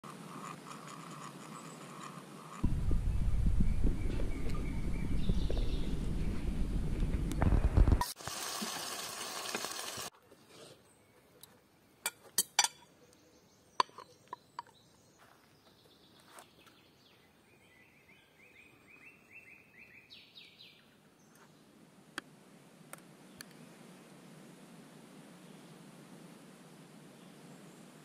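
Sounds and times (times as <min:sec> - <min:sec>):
bird chirping: 0:02.8 - 0:06.6, 0:12.8 - 0:21.6.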